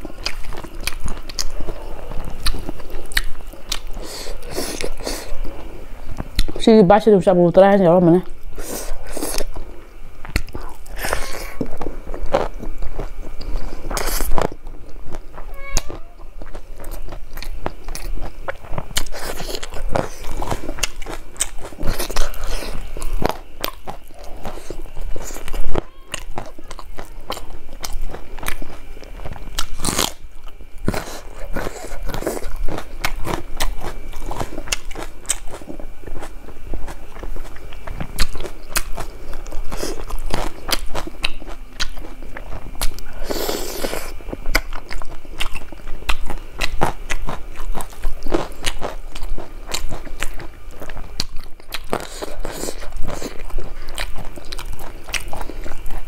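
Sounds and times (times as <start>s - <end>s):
person chewing with mouth smacks: 0.0s - 6.6s, 8.4s - 56.0s.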